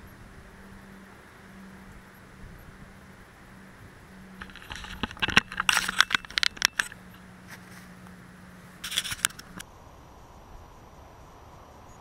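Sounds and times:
microphone handling noise: 0:04.4 - 0:07.9.

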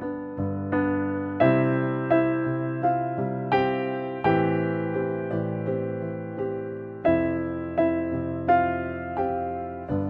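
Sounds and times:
slow gentle piano music: 0:00.0 - 0:10.0.

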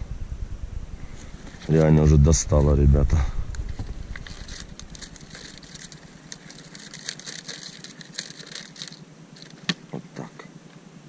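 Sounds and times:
plastic bottle crackling: 0:03.5 - 0:09.8.

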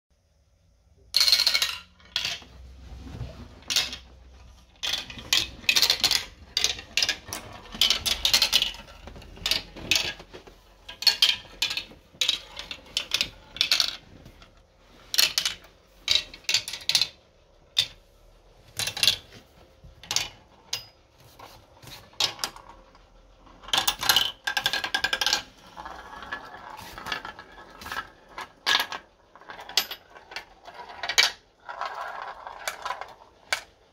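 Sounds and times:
marbles clattering down plastic track: 0:01.2 - 0:02.5, 0:03.6 - 0:14.2, 0:15.2 - 0:17.2, 0:23.4 - 0:33.8
marbles rolling: 0:01.2 - 0:02.6, 0:03.6 - 0:14.4, 0:23.5 - 0:33.8.

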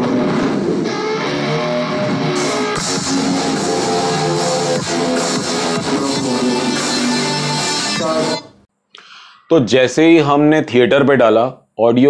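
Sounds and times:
guitar music from tv speakers: 0:00.0 - 0:08.6.

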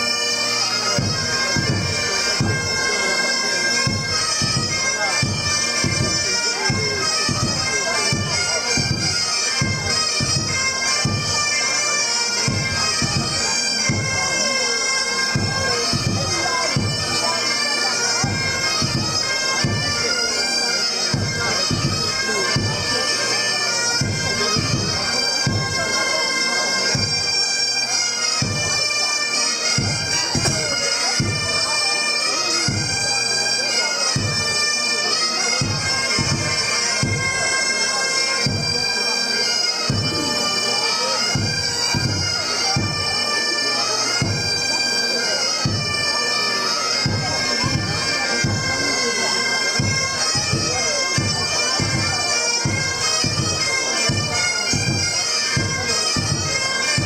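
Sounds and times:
bagpipes with drone: 0:00.0 - 0:57.0
steady drum beat: 0:00.9 - 0:02.8, 0:03.8 - 0:11.4, 0:12.5 - 0:14.3, 0:15.3 - 0:17.6, 0:18.2 - 0:20.4, 0:21.1 - 0:22.9, 0:24.0 - 0:25.9, 0:29.8 - 0:31.6, 0:32.7 - 0:32.9, 0:35.6 - 0:37.4, 0:39.8 - 0:40.4, 0:41.3 - 0:43.0, 0:44.2 - 0:44.4, 0:47.0 - 0:47.4, 0:48.0 - 0:49.0, 0:49.7 - 0:53.5, 0:54.8 - 0:57.0.

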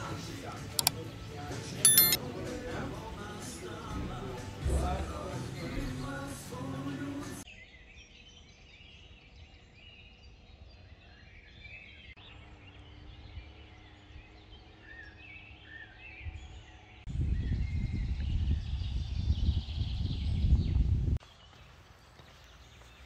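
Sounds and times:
small birds chirping: 0:07.4 - 0:23.0.

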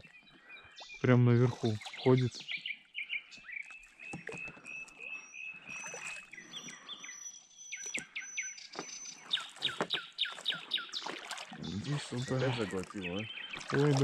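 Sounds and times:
water splashing: 0:00.8 - 0:02.4, 0:03.6 - 0:06.9, 0:08.8 - 0:14.0.

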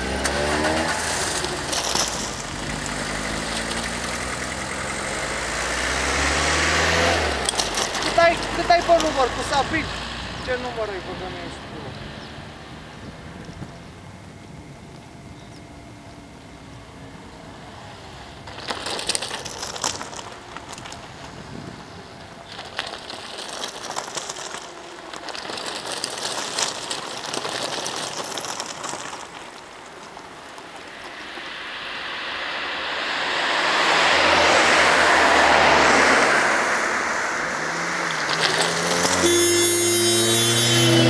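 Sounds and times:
car passing on road: 0:00.0 - 0:14.0, 0:28.9 - 0:41.0.

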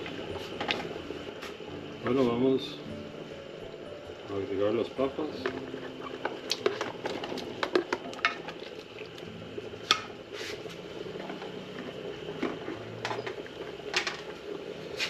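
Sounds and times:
stew bubbling: 0:00.0 - 0:15.0
tub and ladle knocking on pot: 0:05.4 - 0:08.6.

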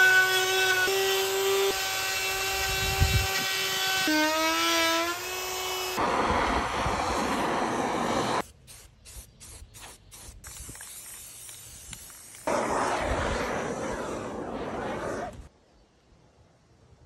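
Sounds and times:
aerosol spray can hissing: 0:08.4 - 0:12.6.

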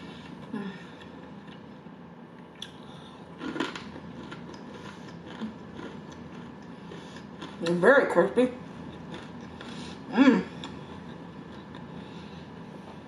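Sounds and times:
person chewing crispy food: 0:02.6 - 0:07.7, 0:08.6 - 0:12.9.

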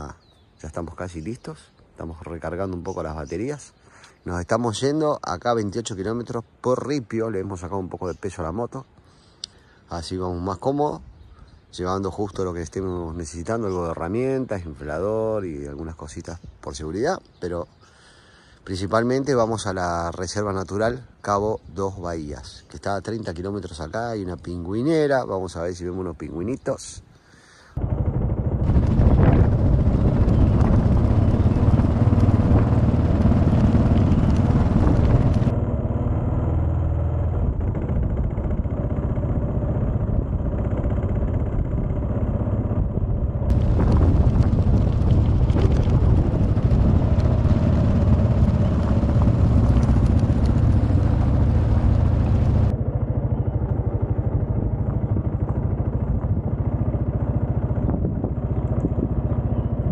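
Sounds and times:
motorcycle engine running: 0:27.8 - 0:59.9.

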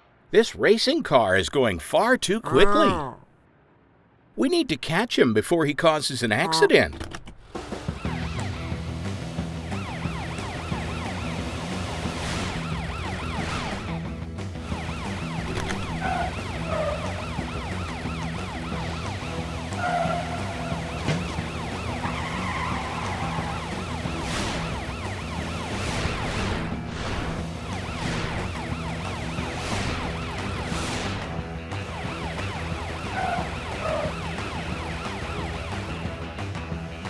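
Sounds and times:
background music: 0:06.2 - 0:37.0
cartoon police siren wailing: 0:08.0 - 0:08.7, 0:09.6 - 0:11.8, 0:12.5 - 0:14.0, 0:14.7 - 0:26.5, 0:27.6 - 0:30.8, 0:31.8 - 0:36.2
quick whooshes: 0:29.6 - 0:31.4.

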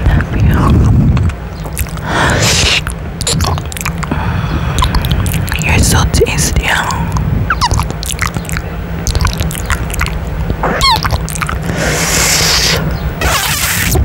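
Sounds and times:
steady low rumble: 0:00.0 - 0:14.0
wet kissing and lip-smacking: 0:01.7 - 0:04.1, 0:04.8 - 0:05.7, 0:07.1 - 0:14.0
breathy hiss: 0:02.0 - 0:02.9, 0:11.6 - 0:12.9.

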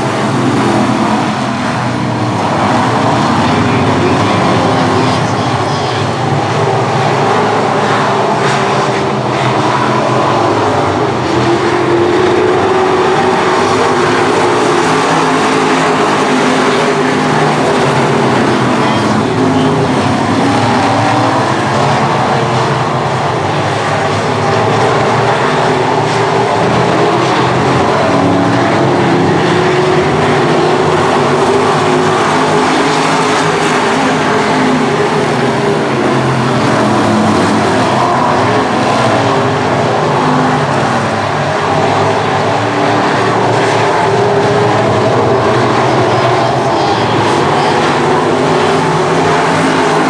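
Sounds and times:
race car engines running hard: 0:00.0 - 0:50.0.

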